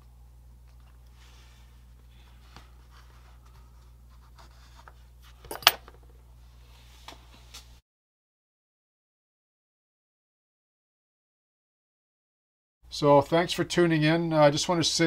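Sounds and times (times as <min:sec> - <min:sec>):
low steady hum: 0:00.0 - 0:07.8.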